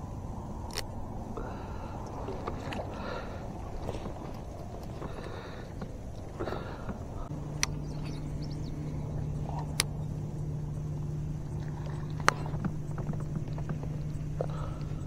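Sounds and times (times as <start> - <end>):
low motor hum: 0.0 - 15.0
sharp clicks: 0.7 - 1.0, 9.5 - 10.0.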